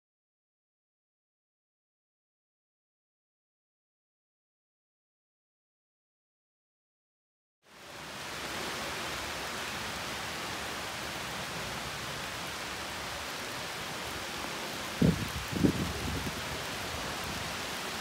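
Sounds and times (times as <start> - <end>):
steady rain falling: 7.6 - 18.0.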